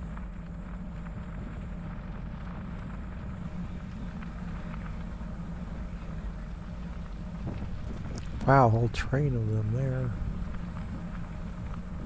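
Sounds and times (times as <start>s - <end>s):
bicycle tyres rumbling: 0.0s - 12.0s
gravel ticks: 0.0s - 12.0s
wind on microphone: 1.2s - 12.0s.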